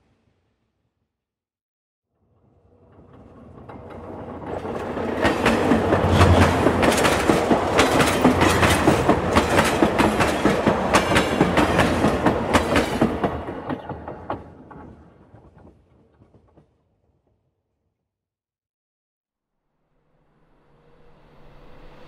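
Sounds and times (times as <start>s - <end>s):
train wheels clattering over rails: 3.0s - 16.6s.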